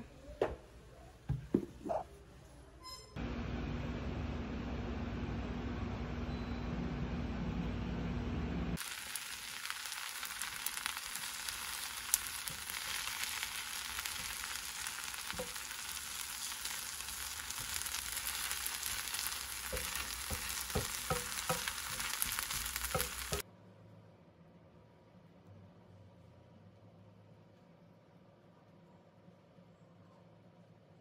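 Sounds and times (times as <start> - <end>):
food sizzling in a frying pan: 8.8 - 23.4
wooden spatula knocking on pan: 19.1 - 23.4.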